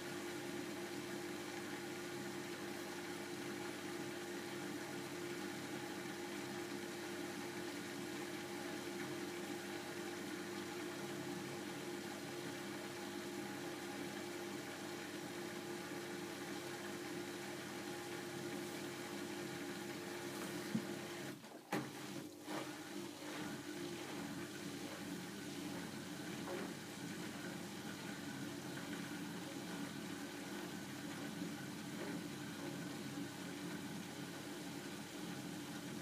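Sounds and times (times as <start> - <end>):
washing machine humming: 0.0 - 36.0.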